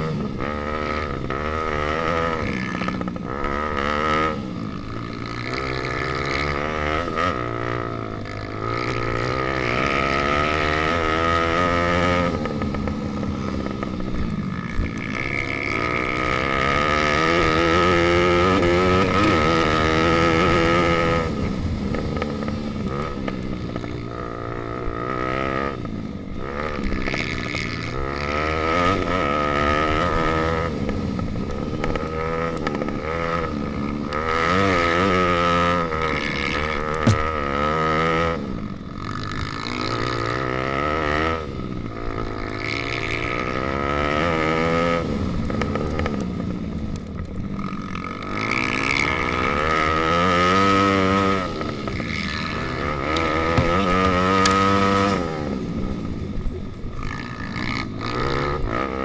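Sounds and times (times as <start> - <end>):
pit bike engine revving: 0.0 - 59.0
sharp knock: 37.0 - 37.3.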